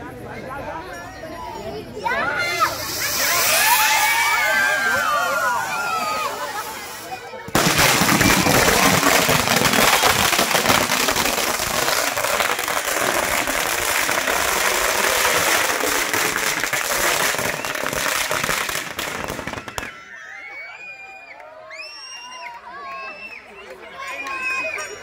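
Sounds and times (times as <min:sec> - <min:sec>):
firecrackers crackling: 0:02.4 - 0:20.1.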